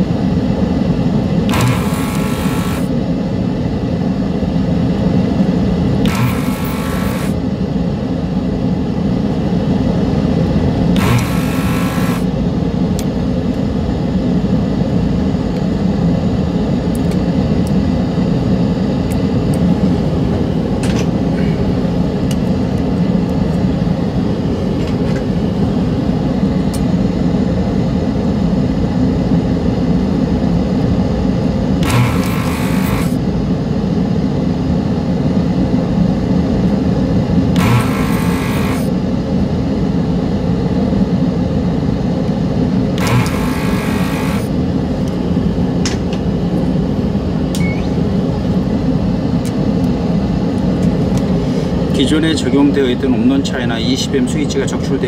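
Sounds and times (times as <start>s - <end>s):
low machine hum: 0.0s - 55.0s
desoldering gun suction hiss: 1.5s - 2.9s, 6.1s - 7.4s, 11.0s - 12.3s, 31.8s - 33.1s, 37.6s - 38.9s, 43.0s - 44.5s.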